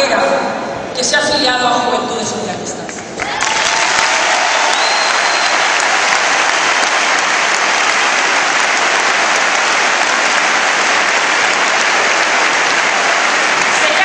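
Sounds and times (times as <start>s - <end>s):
crowd applauding: 3.1s - 14.0s.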